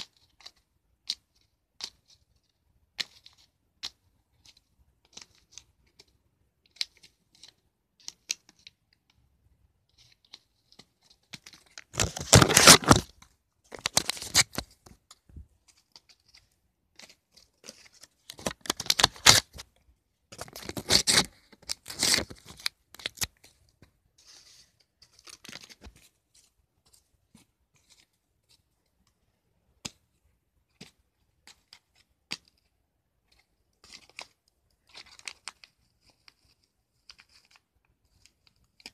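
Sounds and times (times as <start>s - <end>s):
paper rustling: 9.9s - 29.1s, 30.7s - 38.9s
paper tearing: 11.9s - 13.1s, 17.6s - 19.6s, 20.4s - 23.4s.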